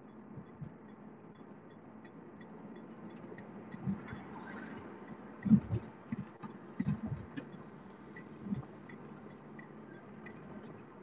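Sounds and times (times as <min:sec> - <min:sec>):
faint ticking: 0:00.0 - 0:11.0
car cabin rumble: 0:02.8 - 0:11.0.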